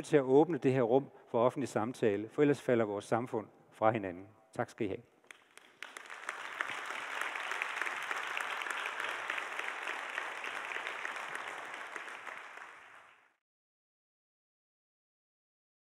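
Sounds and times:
crowd applauding: 5.3s - 13.4s.

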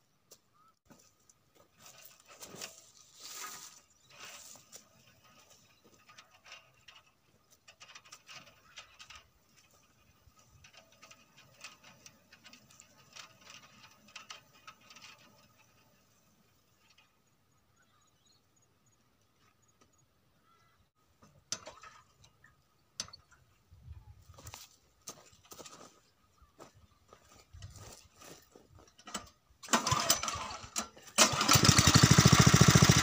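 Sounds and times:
footsteps crunching through dry leaves: 1.7s - 4.7s.

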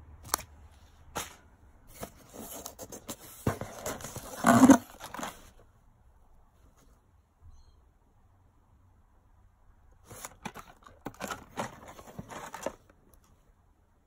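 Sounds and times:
box scraping: 1.2s - 5.5s, 10.1s - 12.8s
candy packets rustling: 10.1s - 12.9s.

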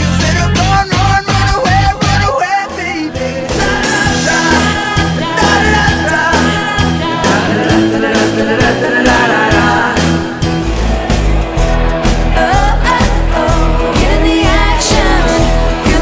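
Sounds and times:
person singing: 0.0s - 10.5s, 12.2s - 16.0s
band playing upbeat music: 0.0s - 16.0s
drum beat: 3.4s - 16.0s.

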